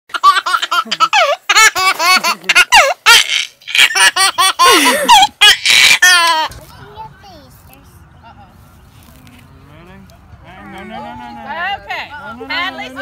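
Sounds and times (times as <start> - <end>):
baby laughing: 0.1 - 6.5.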